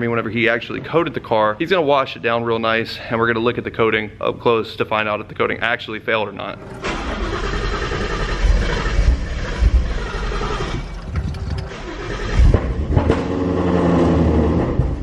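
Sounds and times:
car engine revving rough: 0:06.5 - 0:15.0.

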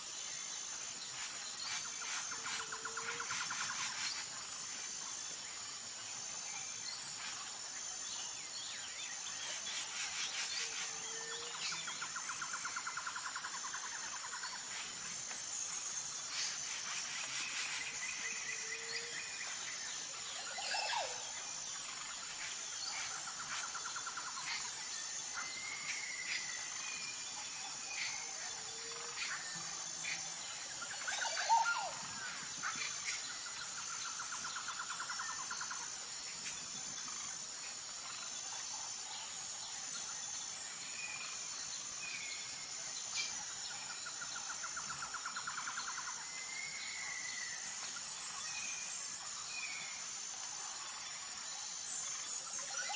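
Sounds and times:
high insect hum: 0:00.0 - 0:52.9
pulsing insect trills: 0:00.0 - 0:52.9.

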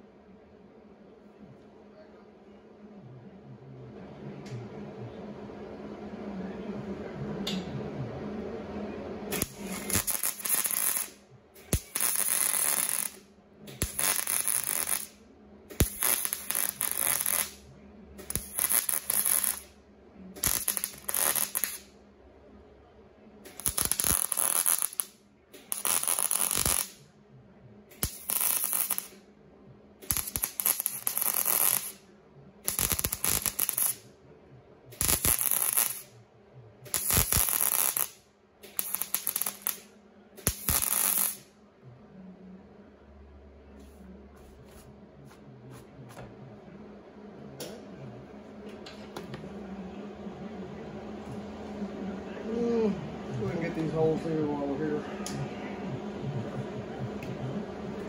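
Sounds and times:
welder crackling: 0:09.3 - 0:17.6, 0:18.2 - 0:19.8, 0:20.4 - 0:21.9, 0:23.5 - 0:27.0, 0:27.9 - 0:29.2, 0:30.0 - 0:32.0, 0:32.7 - 0:34.0, 0:34.9 - 0:36.1, 0:36.9 - 0:41.5.

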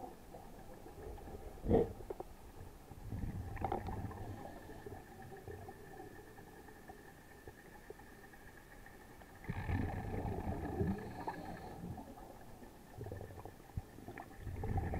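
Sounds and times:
faint steady whine: 0:00.0 - 0:14.9
underwater breath bubbles: 0:03.0 - 0:05.7, 0:09.4 - 0:12.3, 0:14.1 - 0:14.9.

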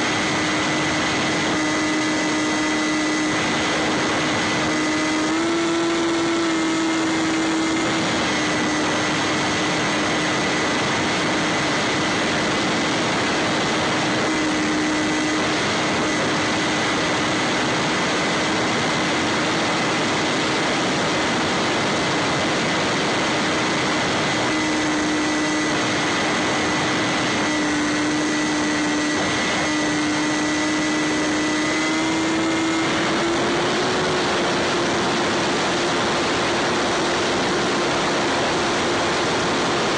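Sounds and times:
electric motor whine: 0:00.0 - 0:39.9
rush of airflow: 0:00.0 - 0:39.9.

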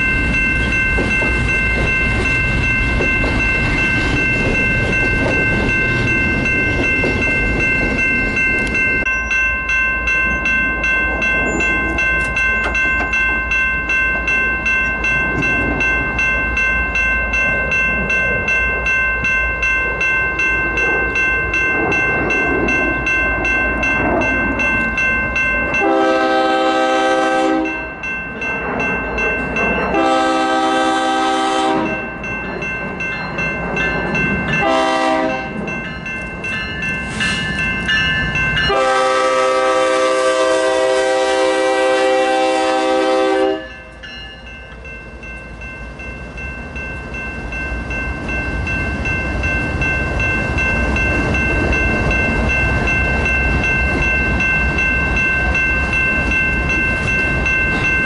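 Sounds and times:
high ringing: 0:00.0 - 0:58.0
train cars rumbling past: 0:00.0 - 0:58.0
train air horn blast: 0:25.8 - 0:27.8, 0:30.0 - 0:32.0, 0:34.6 - 0:35.5, 0:38.7 - 0:43.6.

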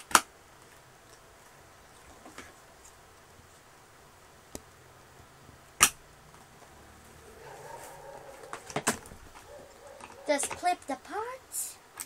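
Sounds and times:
sharp plastic snap: 0:00.0 - 0:00.3, 0:05.8 - 0:06.0.

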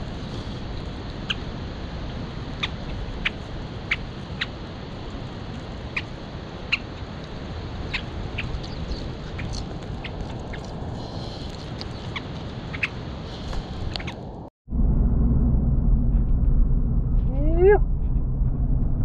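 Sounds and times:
steady low rumble: 0:00.0 - 0:19.0
pigeons pecking at gravel: 0:02.4 - 0:13.9.

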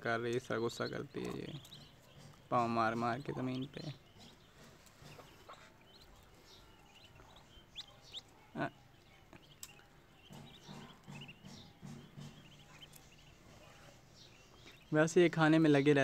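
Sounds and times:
ducklings peeping: 0:00.0 - 0:16.0.

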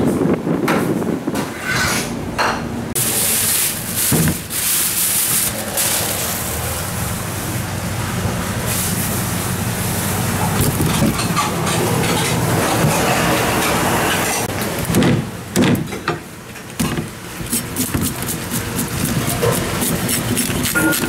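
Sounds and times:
steady background noise: 0:00.0 - 0:21.0
plastic bag crinkling: 0:03.0 - 0:06.8.

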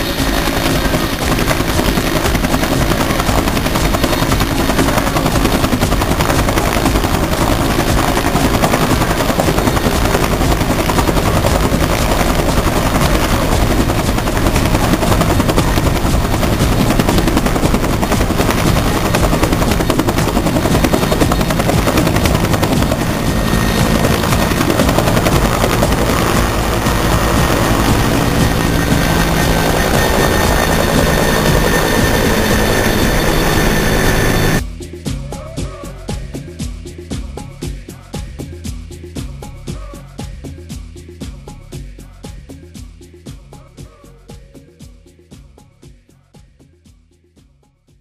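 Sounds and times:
helicopter rotor chopping: 0:00.0 - 0:34.6.

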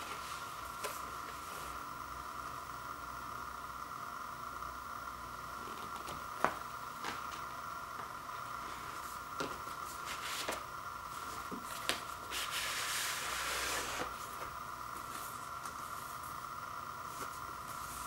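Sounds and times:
steady background hiss: 0:00.0 - 0:18.0
card sliding against card: 0:11.8 - 0:14.2.

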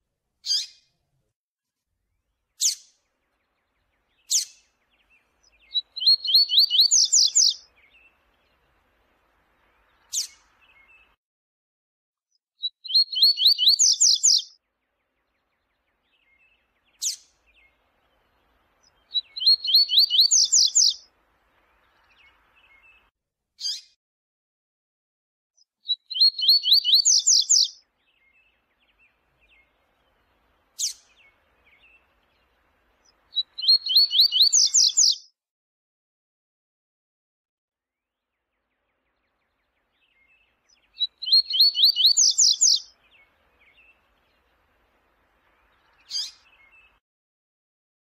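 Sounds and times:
bird singing: 0:02.5 - 0:11.2, 0:12.6 - 0:23.8, 0:25.6 - 0:35.3, 0:38.2 - 0:47.0.

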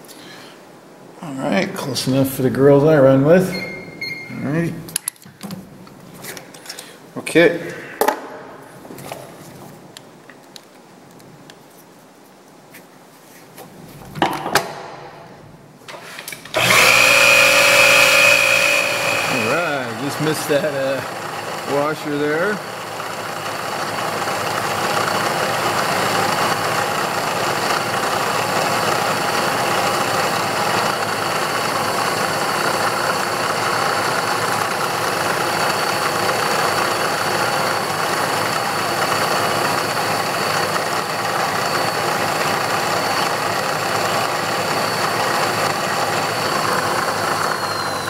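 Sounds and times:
milling machine spindle whine: 0:16.5 - 0:48.0
twist drill drilling brass: 0:16.5 - 0:48.0.

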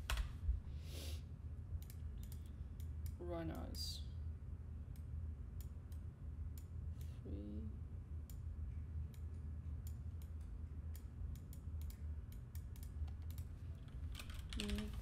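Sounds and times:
low background hum: 0:00.0 - 0:15.0
computer mouse clicks: 0:01.8 - 0:03.6, 0:09.1 - 0:14.8.

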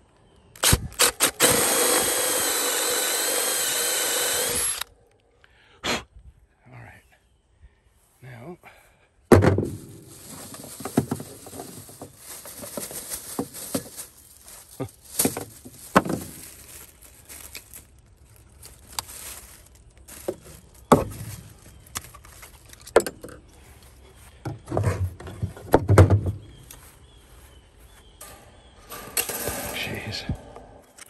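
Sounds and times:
plastic bag rustling: 0:09.5 - 0:23.0.

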